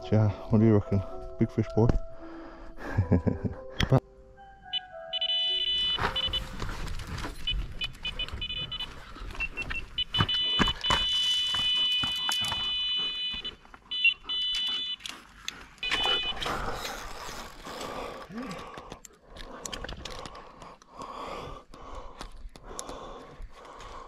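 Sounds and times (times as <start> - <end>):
bite alarm beeping: 4.7 - 16.8
clicks and scuffs of movement: 5.9 - 17.8.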